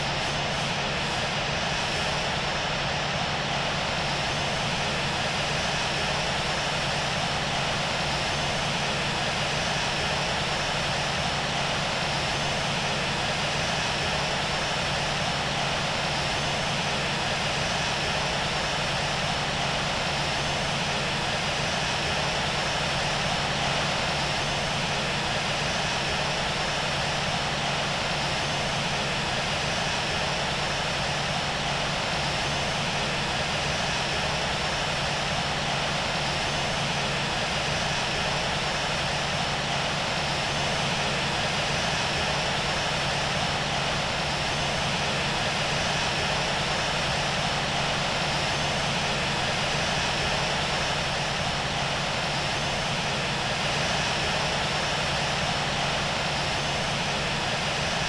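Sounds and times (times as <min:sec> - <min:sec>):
jet engines running: 0:00.0 - 0:58.0.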